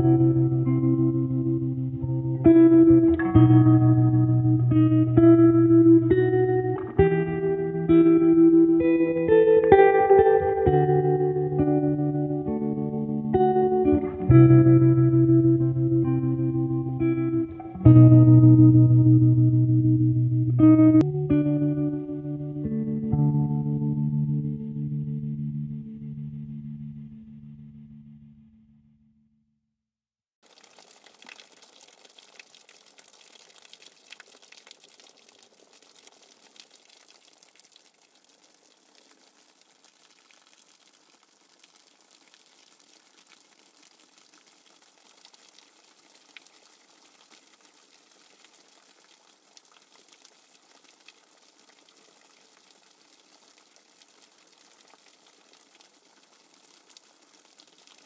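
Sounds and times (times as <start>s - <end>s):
light rain pattering on leaves: 30.4s - 58.0s.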